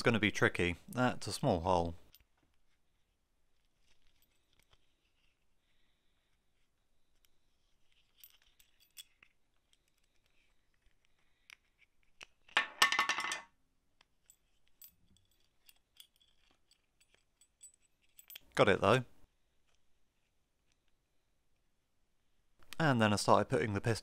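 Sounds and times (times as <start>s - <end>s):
metallic rattle of clinks: 7.8s - 9.4s, 14.2s - 18.6s
faint ticks of small parts: 14.0s - 19.0s.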